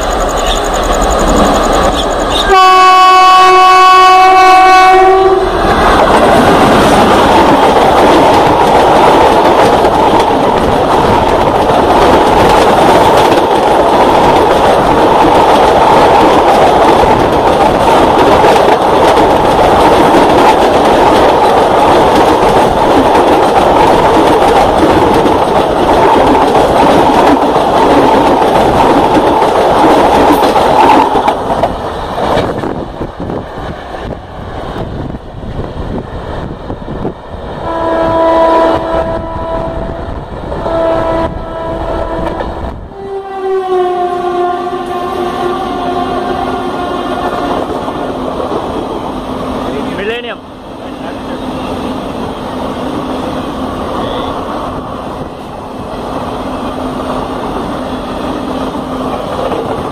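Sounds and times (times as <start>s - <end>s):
train wheels clattering on rail: 0.0s - 2.7s, 3.7s - 42.8s, 44.8s - 59.9s
locomotive horn blast: 2.3s - 5.6s, 37.6s - 47.6s.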